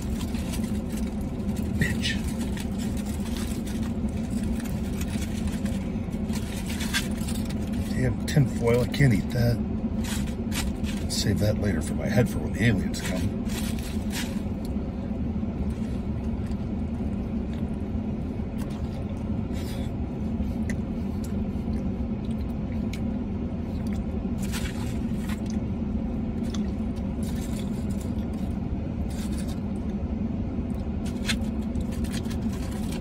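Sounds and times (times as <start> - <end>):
chewing food: 0.0 - 8.0, 15.6 - 17.9, 18.5 - 25.7, 26.3 - 30.0
truck idling hum: 0.0 - 33.0.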